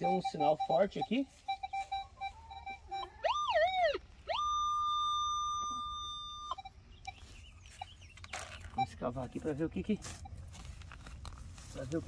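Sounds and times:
faint short beeps: 0.0 - 3.4, 4.4 - 8.0
metal detector tone: 0.0 - 10.6.

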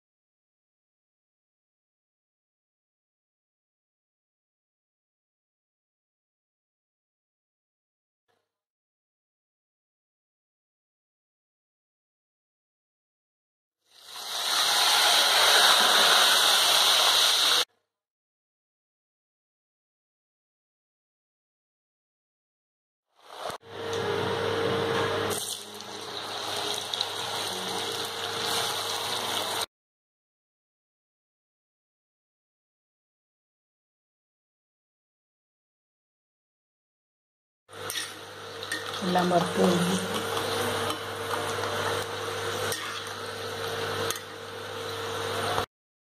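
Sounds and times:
cassava deep-frying in oil: 13.9 - 17.7, 23.2 - 23.6, 25.2 - 29.7, 37.7 - 45.7.

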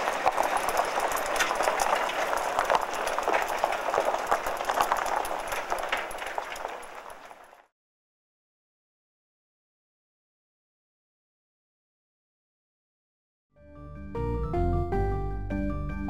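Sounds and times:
small clicks and clatter: 0.0 - 7.7.

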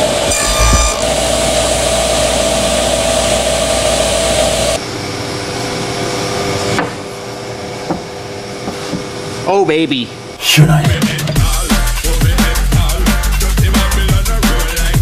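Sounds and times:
table saw whine: 0.0 - 4.8.

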